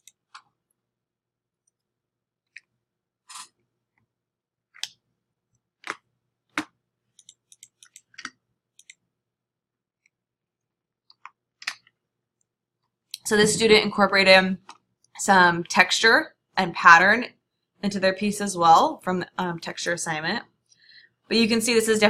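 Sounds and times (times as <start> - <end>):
computer mouse clicks: 7.2 - 9.0.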